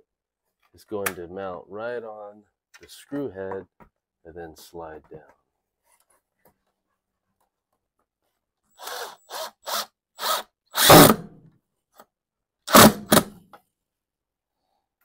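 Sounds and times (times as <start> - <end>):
cordless drill driving screws: 8.8 - 11.2.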